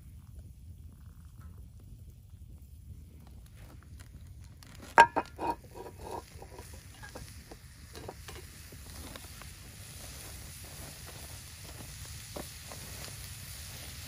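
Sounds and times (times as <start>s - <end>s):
wood fire crackling: 0.0s - 14.0s
cast iron pans clanking: 4.9s - 8.6s.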